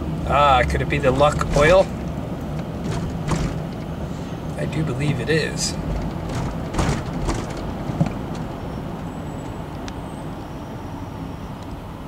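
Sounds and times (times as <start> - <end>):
car engine and road rumble: 0.0 - 12.0
short knocks: 1.1 - 3.8, 5.0 - 8.5.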